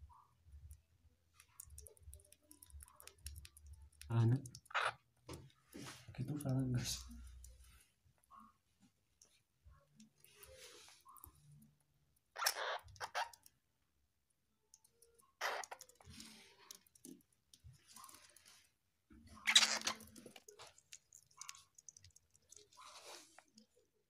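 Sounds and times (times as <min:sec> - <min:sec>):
squirrel gnawing food: 0:01.4 - 0:05.0, 0:09.2 - 0:13.5, 0:14.7 - 0:18.7, 0:19.3 - 0:23.8.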